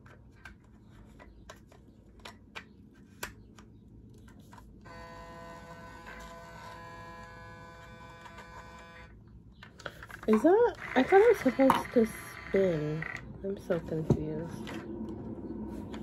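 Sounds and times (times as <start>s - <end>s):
small motor buzzing: 4.9s - 9.1s, 10.7s - 13.2s.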